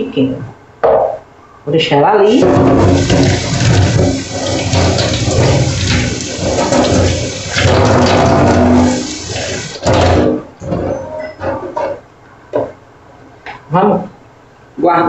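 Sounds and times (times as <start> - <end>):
container rinsed under water: 2.4 - 10.3
tap running into metal sink: 2.4 - 10.3.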